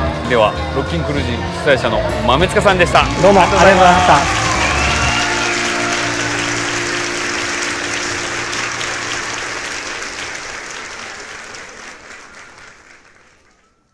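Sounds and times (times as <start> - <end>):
crowd applauding: 2.8 - 13.9.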